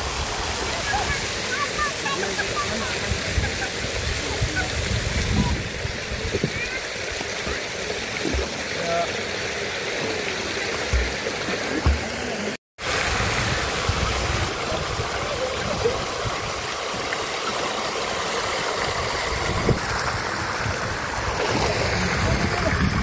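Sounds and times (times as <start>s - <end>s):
water splashing into pool: 0.0s - 23.0s.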